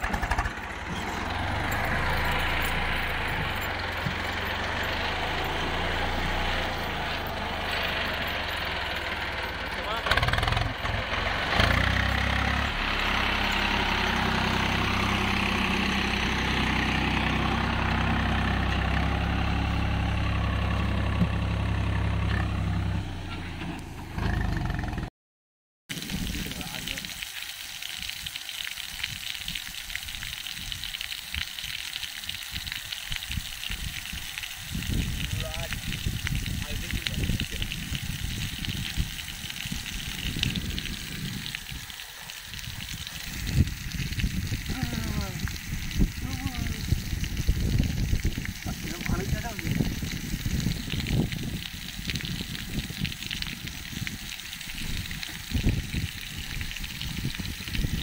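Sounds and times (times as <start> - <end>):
water jet spraying: 0.0 - 22.6, 25.9 - 58.0
wind rumbling on microphone: 25.9 - 27.1, 28.9 - 58.0.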